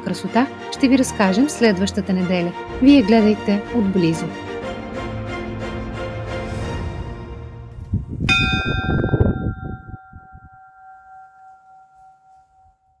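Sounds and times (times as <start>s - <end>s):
small bell ringing: 8.3s - 13.0s.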